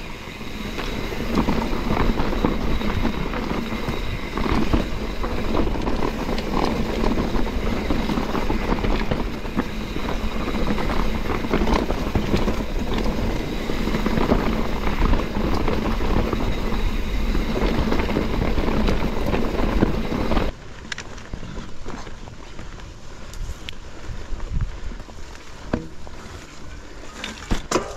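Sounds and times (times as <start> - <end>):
wind on microphone: 0.0 - 20.6
bike rattles and knocks: 0.0 - 27.9
tyres on dirt: 0.0 - 27.9.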